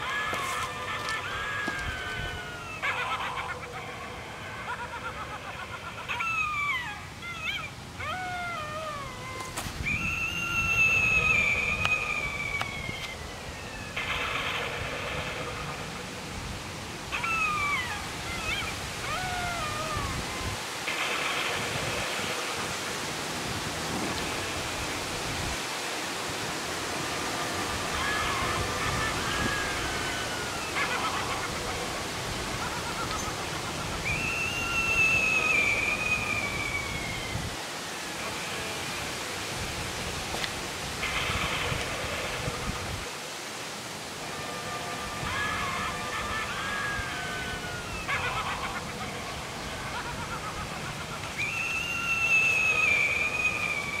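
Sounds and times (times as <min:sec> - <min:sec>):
high falling wail: 0:00.0 - 0:16.2, 0:17.0 - 0:25.7, 0:26.3 - 0:39.1, 0:44.2 - 0:54.0
speaker hiss: 0:00.0 - 0:54.0
high whistling tone falling in pitch: 0:06.4 - 0:14.2, 0:34.0 - 0:37.5, 0:51.4 - 0:54.0.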